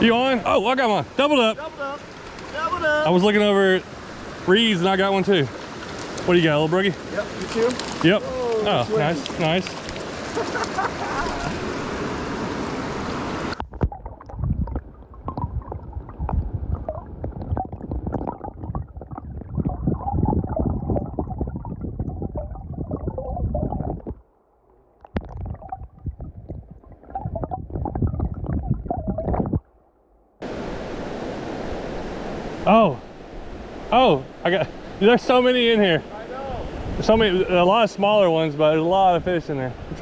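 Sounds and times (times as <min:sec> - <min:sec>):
creek water rushing: 0:00.0 - 0:13.6, 0:30.4 - 0:40.0
muffled underwater gurgling: 0:13.8 - 0:24.2, 0:25.1 - 0:29.6.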